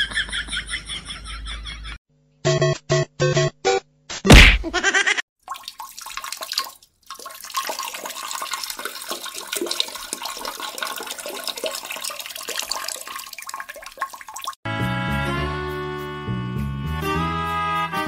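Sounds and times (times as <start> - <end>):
water rushing in toilet bowl: 5.4 - 14.6.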